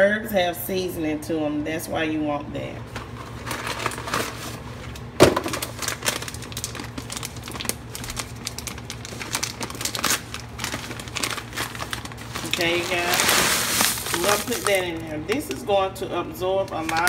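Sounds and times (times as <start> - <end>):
plastic packet crinkling: 3.3 - 15.6, 16.6 - 17.0.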